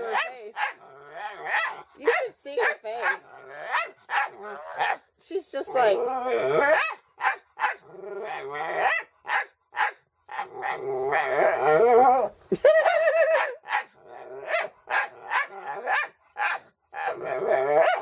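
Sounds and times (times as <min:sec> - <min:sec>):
dog barking: 0:00.0 - 0:00.8, 0:01.5 - 0:05.0, 0:06.7 - 0:07.8, 0:08.8 - 0:10.0, 0:13.4 - 0:13.9, 0:14.5 - 0:16.7, 0:17.8 - 0:18.0.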